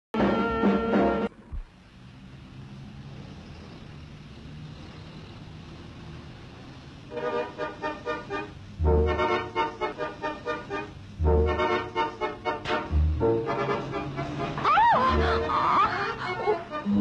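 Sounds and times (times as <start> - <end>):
music: 0.2 - 1.4, 7.1 - 17.0
vehicle running: 0.2 - 17.0.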